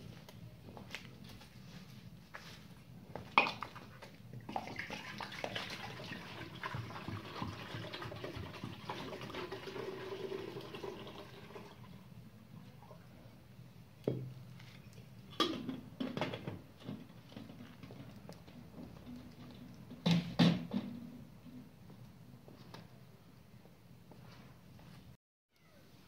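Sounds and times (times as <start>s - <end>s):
water pouring into metal kettle: 4.5s - 12.0s.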